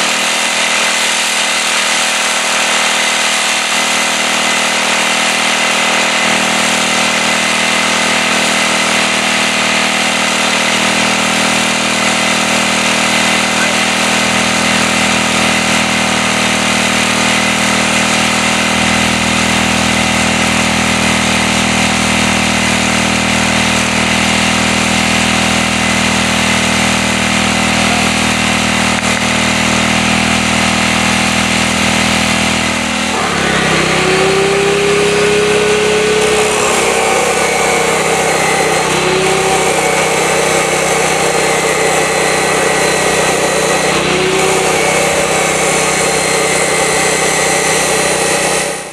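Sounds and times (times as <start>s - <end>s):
chop saw grinding through metal: 0.0s - 48.9s
motor drone: 0.0s - 48.9s.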